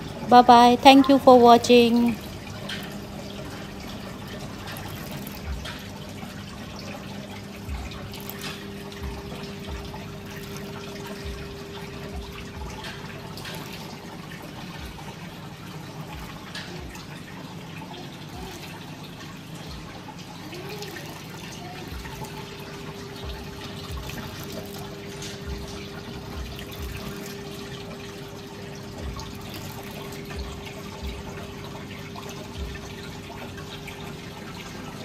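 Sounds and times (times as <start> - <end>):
fountain water trickling and splashing: 0.0 - 35.0
pump motor humming: 0.0 - 35.0.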